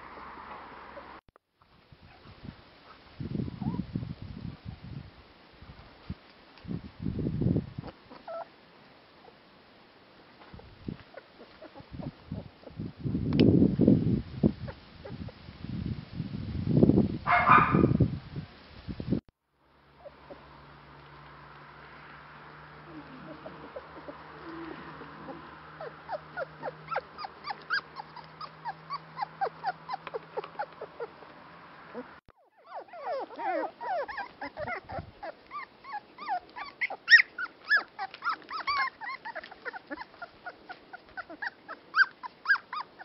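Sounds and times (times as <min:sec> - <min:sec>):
puppies yipping and whimpering: 0:03.5 - 0:03.8, 0:07.8 - 0:08.5, 0:10.6 - 0:12.8, 0:19.9 - 0:20.6, 0:22.6 - 0:43.0.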